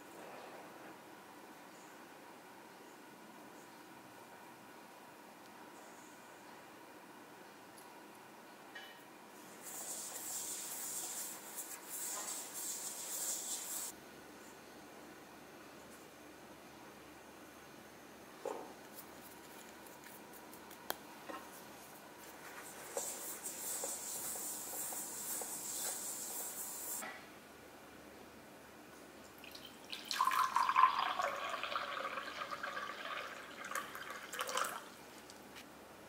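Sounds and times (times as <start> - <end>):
soft steady hiss: 0.0 - 36.0
water pouring into glass cup: 29.4 - 35.0.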